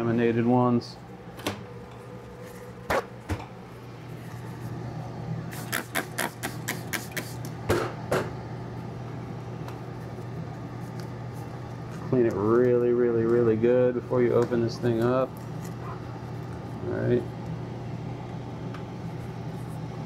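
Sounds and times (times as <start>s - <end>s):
fan humming: 0.0s - 20.0s
spray bottle squirting: 5.5s - 7.5s.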